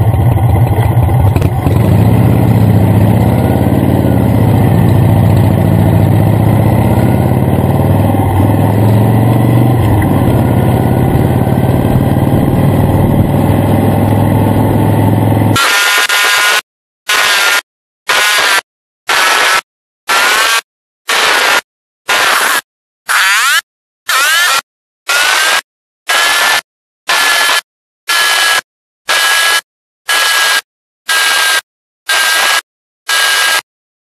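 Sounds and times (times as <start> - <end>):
broken-up engine sound: 0.0 - 15.6
motorcycle engine running: 0.0 - 15.6.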